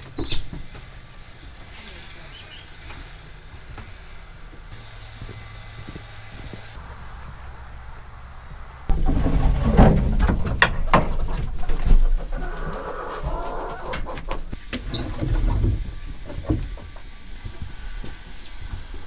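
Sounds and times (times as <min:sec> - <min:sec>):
sharp knocks and clatter: 0:08.9 - 0:12.1
hens clucking: 0:08.9 - 0:14.6.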